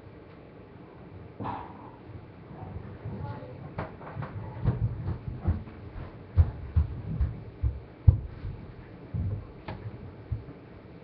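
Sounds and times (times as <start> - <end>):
dull thumps and knocks: 3.8 - 10.6.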